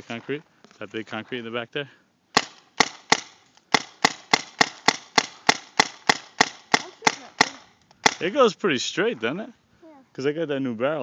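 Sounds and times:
paintball marker firing: 0:02.4 - 0:08.3.

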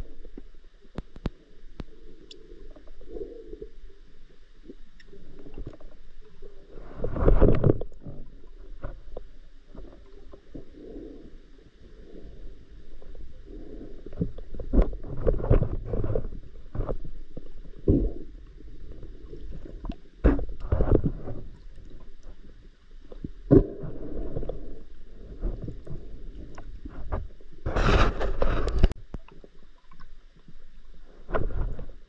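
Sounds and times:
underwater swishes and knocks: 0:04.6 - 0:10.7, 0:12.8 - 0:32.0.

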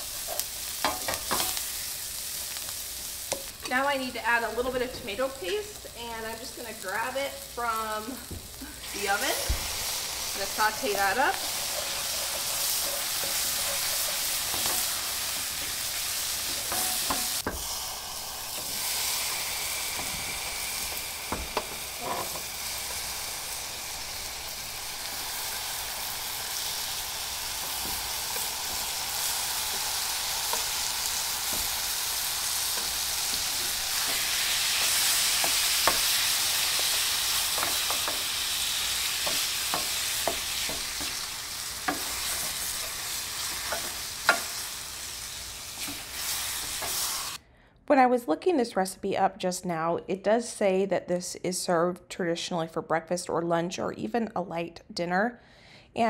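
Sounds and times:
vegetables sizzling in a skillet: 0:00.0 - 0:47.4
wooden spatula scraping pan: 0:10.3 - 0:17.4, 0:21.5 - 0:22.8
spatula knocking: 0:29.6 - 0:41.3, 0:41.9 - 0:44.6.

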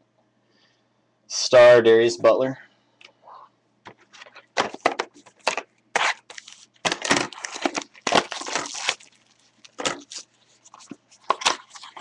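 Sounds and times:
card pack wrapper crinkling: 0:04.2 - 0:12.0.

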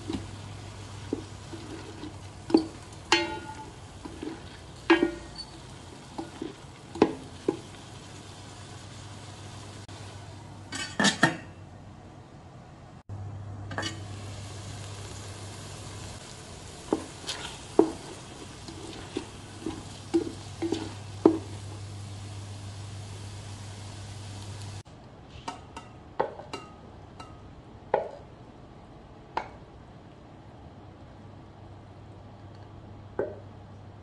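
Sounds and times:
pasta frying hiss: 0:00.0 - 0:10.9, 0:13.7 - 0:24.9
spatula knocking pot: 0:01.0 - 0:05.4, 0:16.9 - 0:21.6
spatula scraping pot: 0:01.0 - 0:07.1, 0:16.9 - 0:21.6.

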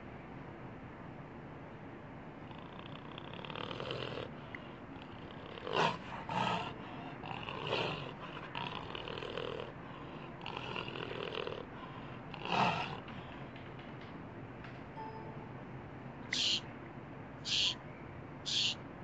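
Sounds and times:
jaguar grunting calls: 0:02.4 - 0:13.4, 0:16.3 - 0:16.6, 0:17.5 - 0:17.8, 0:18.5 - 0:18.8.

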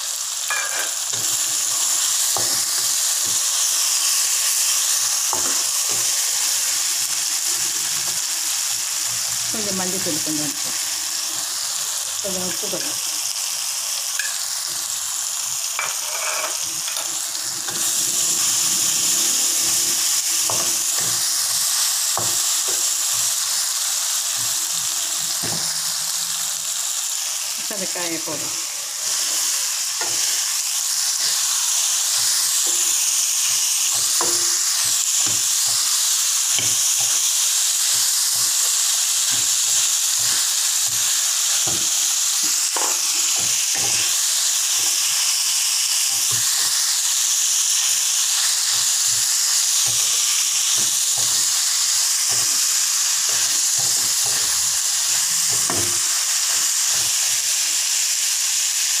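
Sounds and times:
beans sizzling in hot oil: 0:00.0 - 0:59.0
spatula scraping metal wok: 0:15.8 - 0:23.7, 0:27.7 - 0:37.3.

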